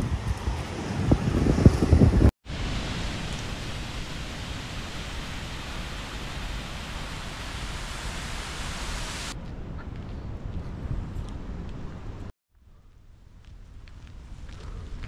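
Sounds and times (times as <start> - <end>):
waterfall rushing and splashing: 2.5 - 9.4.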